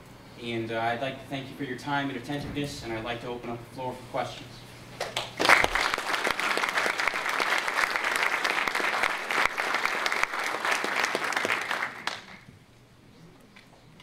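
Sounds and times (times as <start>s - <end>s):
audience applauding: 5.0s - 12.5s.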